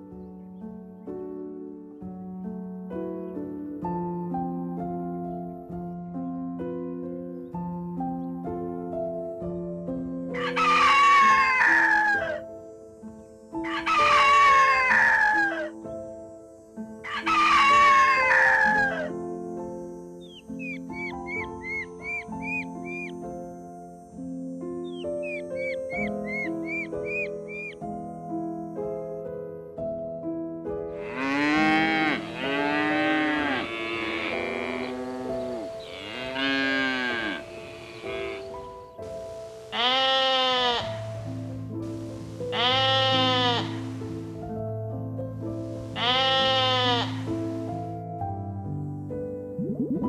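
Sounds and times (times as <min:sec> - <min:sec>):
soft piano music: 0:00.0 - 0:50.0
rooster crowing: 0:10.4 - 0:12.4, 0:13.6 - 0:15.7, 0:17.0 - 0:19.1
cattle mooing: 0:31.0 - 0:38.6.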